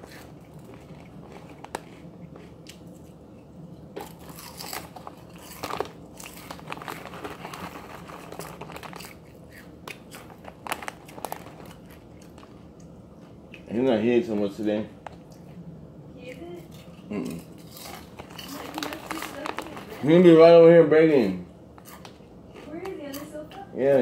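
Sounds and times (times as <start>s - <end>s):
chip bag crinkling: 0.0s - 2.6s, 4.0s - 12.8s, 17.6s - 22.2s
chips crunching when chewed: 0.0s - 12.9s, 16.6s - 20.4s.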